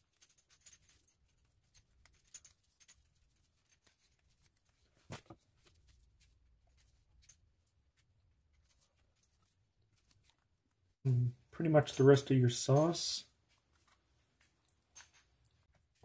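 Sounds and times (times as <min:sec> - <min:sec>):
tortillas rustling in metal pan: 0:00.9 - 0:10.6.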